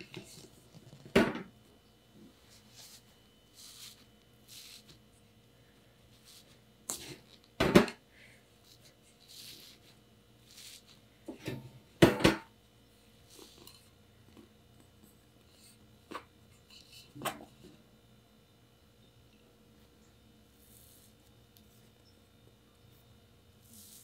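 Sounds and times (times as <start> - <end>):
fingers rustling on cake: 0.0 - 1.1, 2.3 - 7.6, 8.5 - 11.2, 13.2 - 14.0, 20.0 - 22.0, 22.9 - 24.0.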